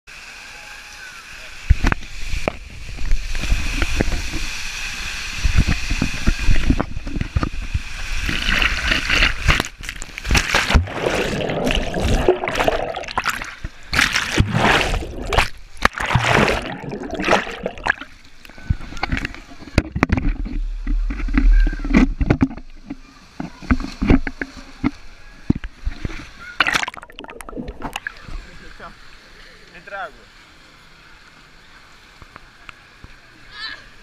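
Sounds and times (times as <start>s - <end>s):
water rushing down a slide: 0.1s - 29.4s
splash into a pool: 0.5s - 18.2s, 25.9s - 28.5s
water churning and gurgling: 1.6s - 29.4s.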